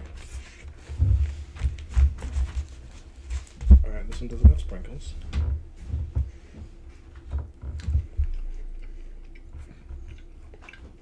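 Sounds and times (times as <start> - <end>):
people biting and chewing pastry: 7.5 - 11.0.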